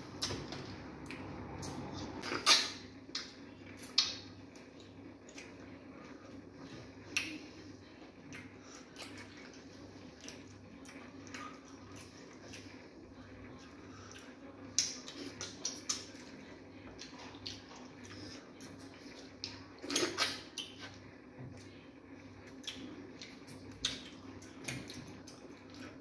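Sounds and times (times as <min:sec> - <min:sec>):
finger-licking and lip smacks: 0:02.4 - 0:04.2.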